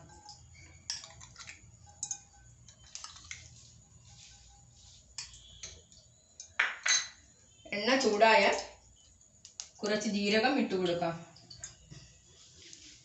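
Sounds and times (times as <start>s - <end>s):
spoon clinking against glass bowl: 0.0s - 3.4s, 5.2s - 7.3s.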